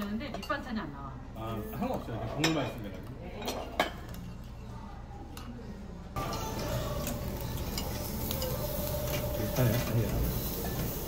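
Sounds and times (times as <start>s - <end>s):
beef sizzling on grill: 6.2s - 11.0s.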